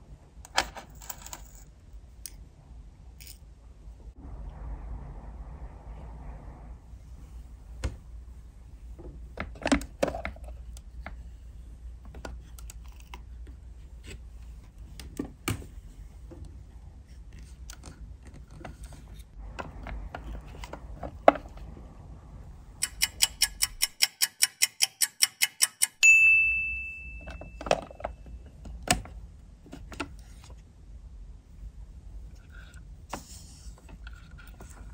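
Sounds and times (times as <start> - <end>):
small plastic parts clicking: 22.8 - 26.0
bright ding: 26.0 - 27.7.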